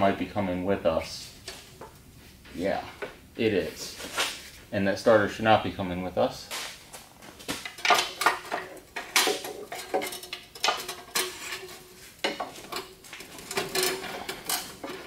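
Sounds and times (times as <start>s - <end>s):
hand tools clinking on metal: 7.6s - 15.0s.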